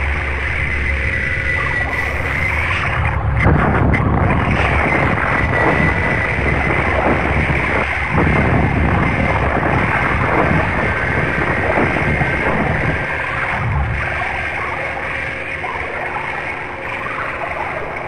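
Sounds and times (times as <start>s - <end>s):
loud dense low noise: 0.0s - 18.0s.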